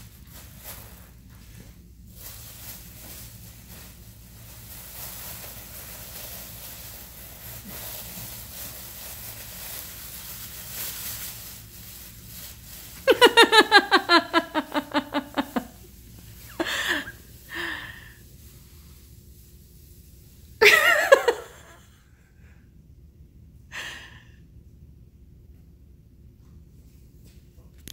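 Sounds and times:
plastic bag rustling: 0.0 - 19.5
rapid laughter: 13.1 - 15.7.

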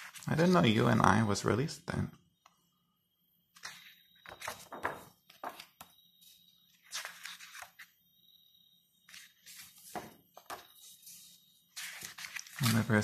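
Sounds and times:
book pages turning: 0.0 - 0.6, 3.6 - 5.9, 6.7 - 8.0, 9.1 - 13.0.

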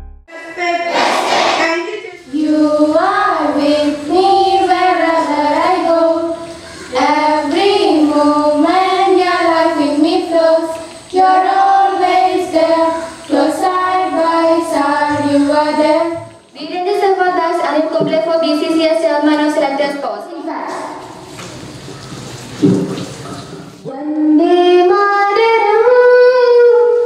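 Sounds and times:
children singing over loudspeakers: 0.3 - 16.4
burst of rushing noise: 0.9 - 1.9.

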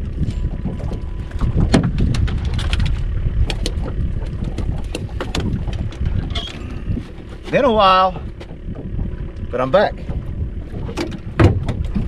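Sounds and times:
wind buffeting microphone: 0.0 - 12.0
sharp clicks and knocks: 0.9 - 6.6, 10.1 - 12.0.

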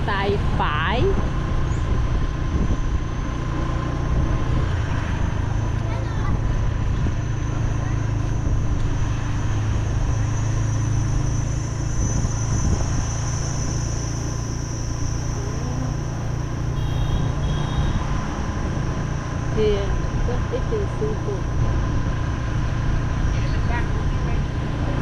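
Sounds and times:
motorbike engine running: 0.0 - 25.0
road rumble: 0.0 - 25.0
high-pitched tone: 15.2 - 17.4.

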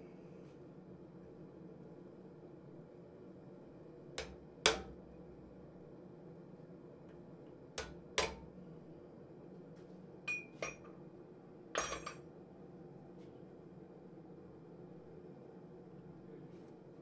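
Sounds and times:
ringing metal clink: 10.3 - 10.9, 11.8 - 12.2.

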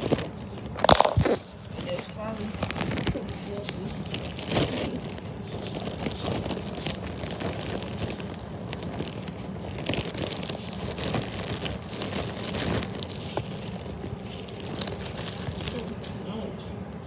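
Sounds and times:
rustling handling noise: 0.0 - 16.5.

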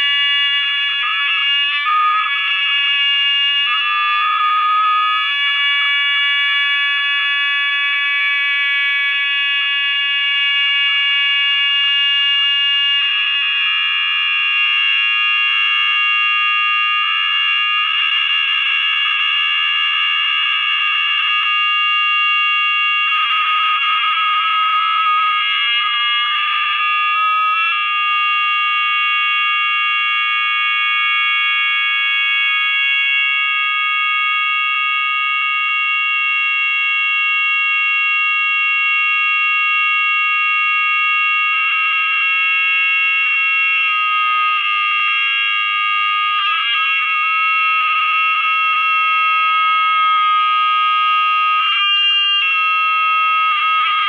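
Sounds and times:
shrill audio feedback howl: 0.0 - 5.3, 51.4 - 54.0.

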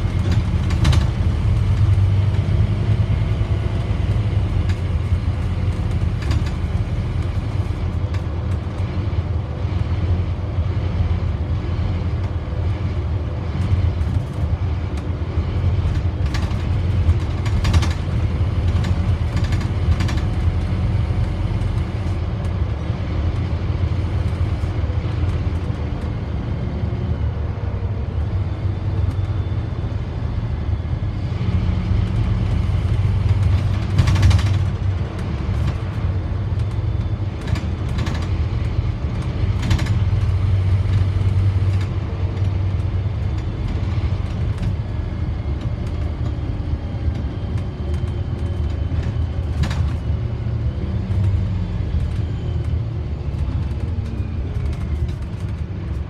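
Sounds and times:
knocks and rattles: 0.0 - 2.8, 33.0 - 36.0
bus engine and road rumble: 0.0 - 56.0.

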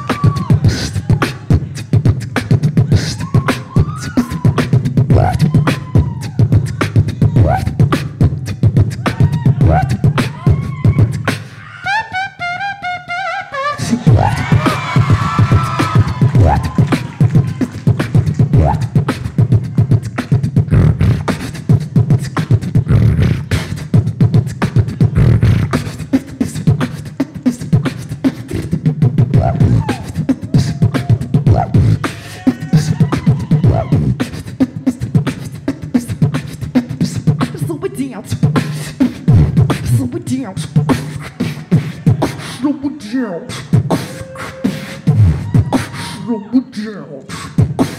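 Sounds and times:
woman beatboxing into microphone: 0.0 - 47.9.

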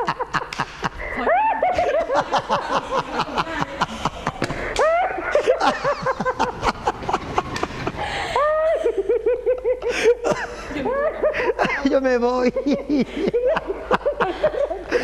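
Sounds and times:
person laughing uncontrollably: 0.0 - 11.8.

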